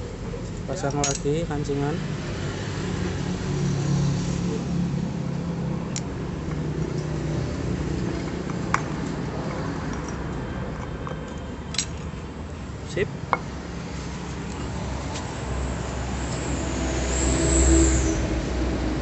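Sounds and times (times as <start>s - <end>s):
sharp metal clicks: 5.9s - 7.2s.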